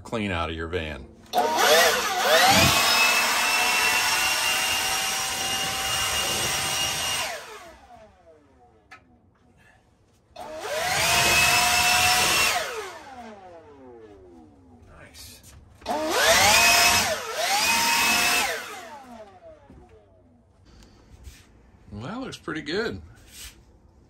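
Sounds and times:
leaf blower whining: 1.2s - 15.0s, 15.7s - 21.1s.

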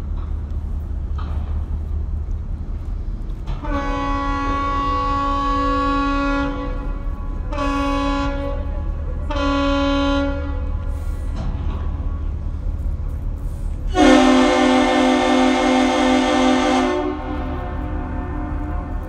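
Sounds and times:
low rumble: 0.0s - 19.0s
ship's horn blasts: 3.5s - 12.6s, 13.8s - 19.0s.

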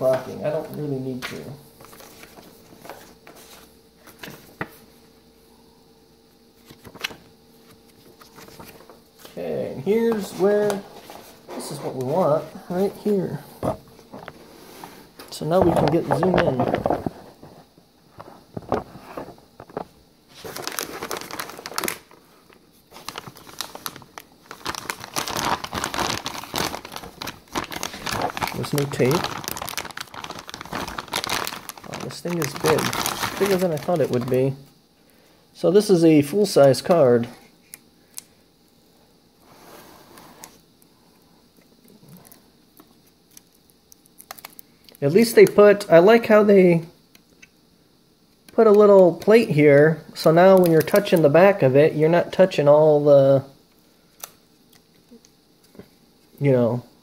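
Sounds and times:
faint steady hum: 0.0s - 57.0s
cardboard and paper rustling: 1.1s - 4.8s, 6.6s - 9.4s, 10.0s - 34.5s
packaging crinkling: 6.6s - 13.2s, 18.6s - 34.6s, 42.2s - 45.6s.

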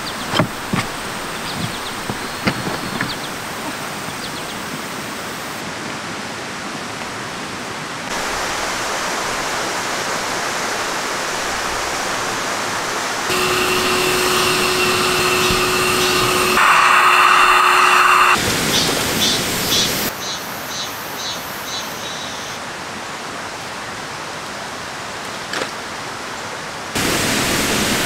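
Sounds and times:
electric air pump humming: 0.0s - 3.6s, 13.3s - 20.1s
flowing water rushing: 0.0s - 20.1s, 25.8s - 28.0s.

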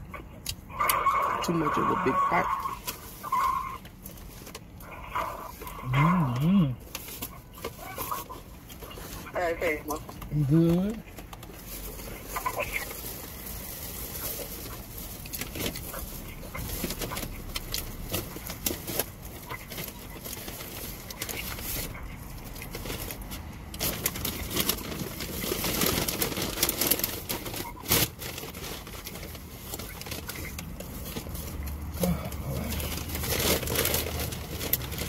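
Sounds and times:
person chewing and lip smacking: 0.0s - 1.0s.

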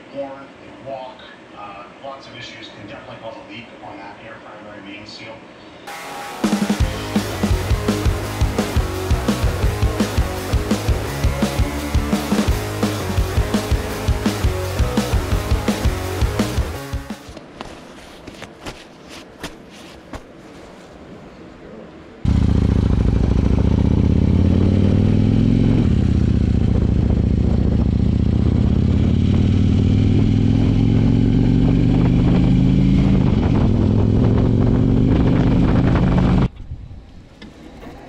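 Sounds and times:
motorcycle engine running: 6.6s - 17.2s, 22.3s - 36.5s
shop noise: 17.1s - 22.3s.

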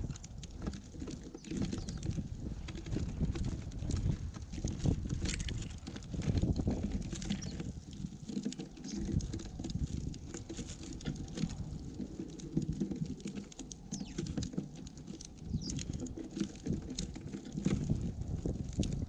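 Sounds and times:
constant low knocking: 0.0s - 19.0s
bird feet on feeder: 0.2s - 3.5s, 6.2s - 19.0s
beaks pecking seed: 1.0s - 3.2s, 6.9s - 17.9s.

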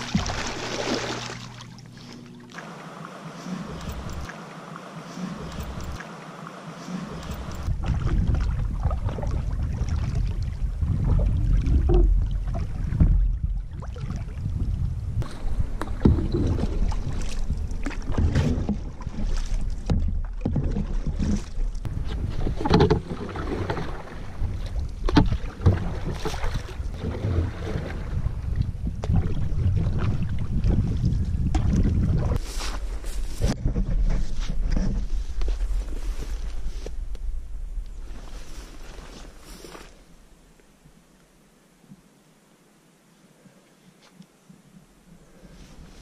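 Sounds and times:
water splashing against hull: 0.0s - 40.2s
wind rumbling on microphone: 7.1s - 40.3s.

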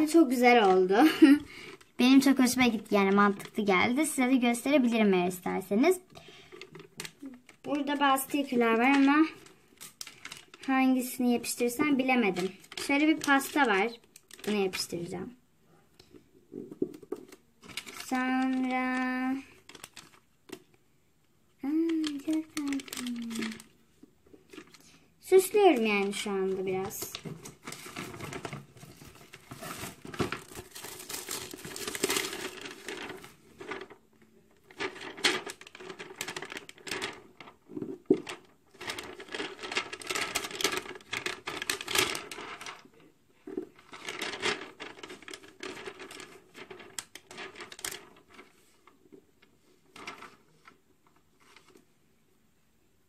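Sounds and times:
plastic sticker sheet crinkling: 6.6s - 15.2s, 16.6s - 20.7s, 21.8s - 42.9s, 43.6s - 48.8s.

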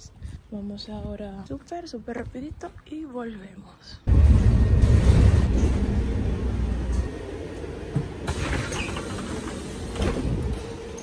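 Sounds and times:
bus engine and road rumble: 4.1s - 11.0s.

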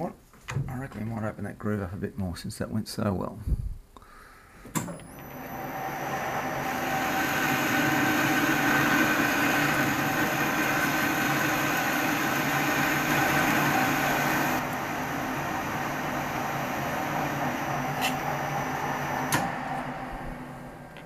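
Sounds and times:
metal lathe running: 5.0s - 20.8s
tool cutting steel bar: 18.0s - 18.2s
lathe switch click: 19.3s - 19.5s.

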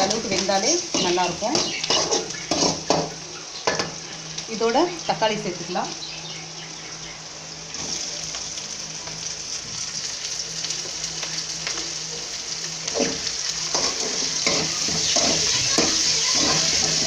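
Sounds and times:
spatula scraping pan: 0.0s - 4.0s, 13.0s - 17.0s
onions sizzling in hot oil: 0.0s - 17.0s.

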